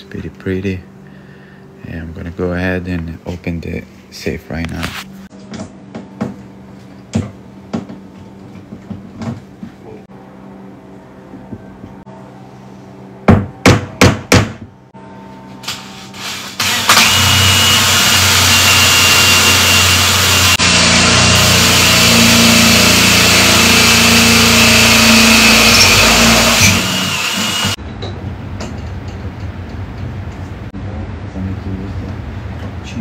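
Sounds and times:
drill boring into steel: 0:16.2 - 0:27.8
high drill squeal: 0:16.2 - 0:27.8.

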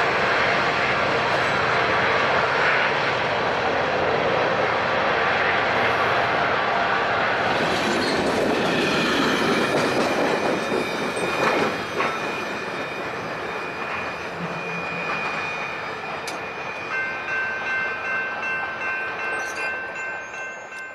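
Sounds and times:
train wheels clattering: 0:07.5 - 0:20.9
crossing warning bell ringing: 0:08.9 - 0:20.9.

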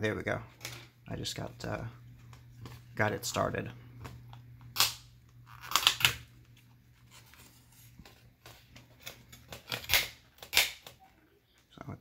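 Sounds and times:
plastic rivets snapping: 0:09.0 - 0:11.0.

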